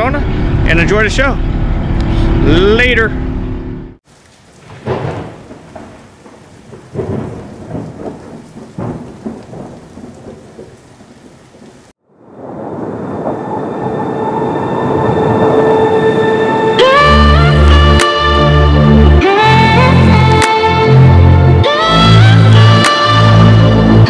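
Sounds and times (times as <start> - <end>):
steady rain: 4.0 - 24.0
thunder rumbling: 4.1 - 17.2.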